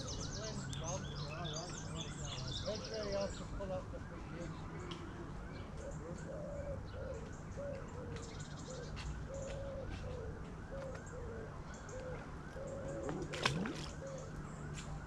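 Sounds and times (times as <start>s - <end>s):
pigeon cooing: 5.8s - 14.3s.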